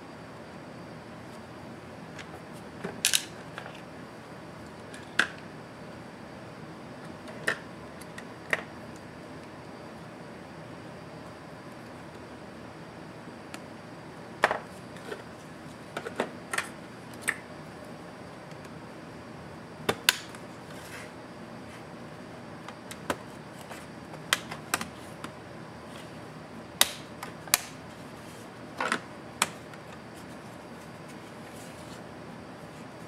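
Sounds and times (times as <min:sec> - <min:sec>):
plastic clips snapping: 0:26.8 - 0:27.8.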